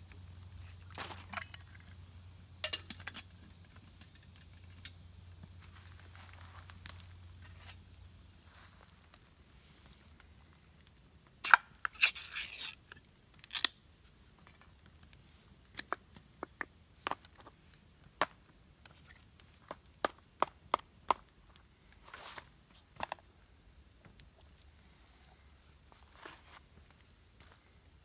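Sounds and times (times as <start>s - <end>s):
metal lid tearing: 11.4s - 13.8s.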